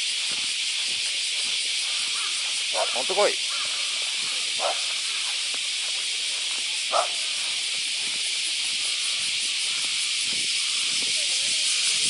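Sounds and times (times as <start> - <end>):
insects buzzing: 0.0 - 12.0.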